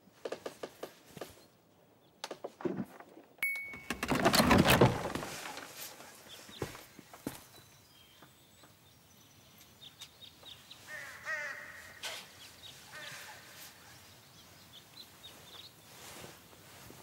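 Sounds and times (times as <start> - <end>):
birds chirping: 4.8 - 16.7
crow cawing: 10.9 - 12.2, 12.9 - 13.6.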